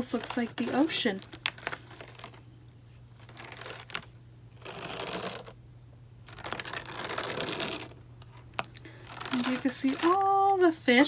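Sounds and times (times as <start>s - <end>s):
pebbles shaken in water bottle: 6.3s - 8.0s, 8.9s - 10.6s.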